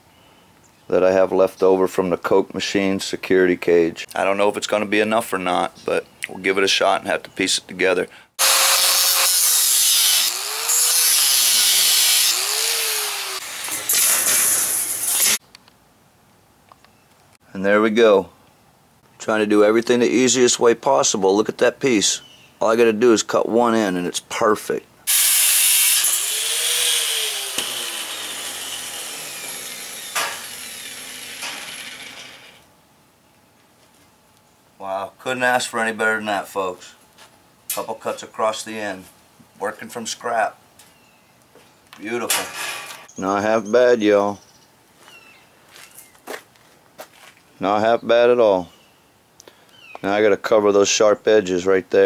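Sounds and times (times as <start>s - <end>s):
angle grinder cutting metal: 8.4s - 15.4s, 25.1s - 32.6s.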